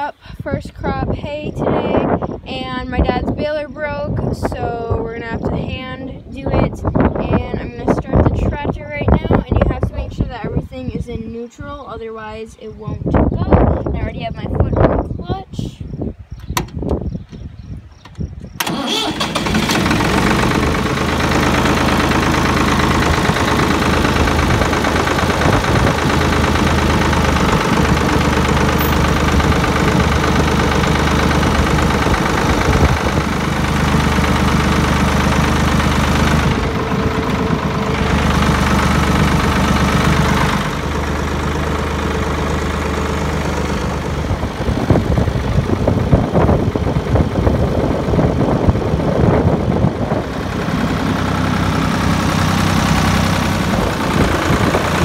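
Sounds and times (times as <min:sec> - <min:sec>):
tractor engine running: 0:16.3 - 0:55.0.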